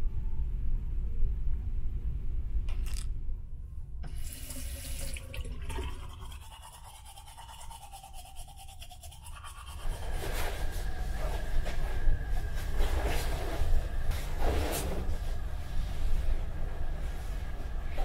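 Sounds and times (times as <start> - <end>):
teeth being brushed: 5.9 - 10.4.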